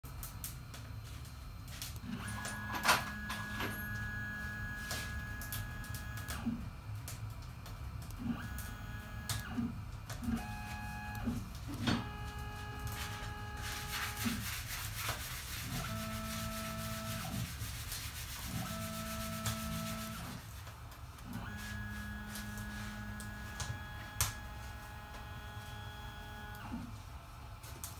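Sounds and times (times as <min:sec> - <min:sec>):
steady low hum: 0:00.0 - 0:27.9
stepper motors whining: 0:02.0 - 0:06.6, 0:08.1 - 0:14.4, 0:21.2 - 0:26.8
motor click: 0:02.0 - 0:07.2, 0:08.0 - 0:13.9, 0:21.2 - 0:26.8.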